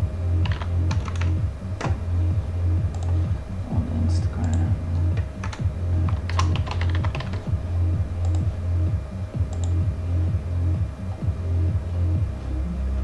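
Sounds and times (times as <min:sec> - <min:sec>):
electronic dance music: 0:00.0 - 0:12.4
computer keyboard clicks: 0:00.4 - 0:02.0, 0:05.4 - 0:07.4.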